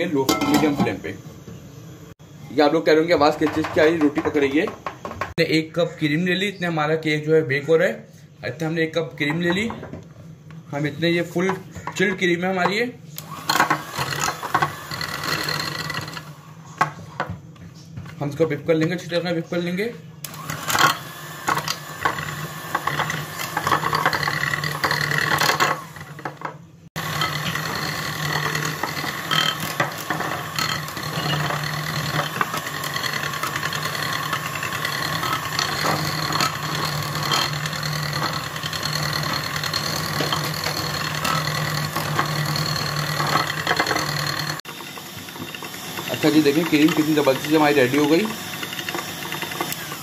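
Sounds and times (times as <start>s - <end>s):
electric hand mixer whipping cream: 13.2s - 16.6s, 20.2s - 50.0s.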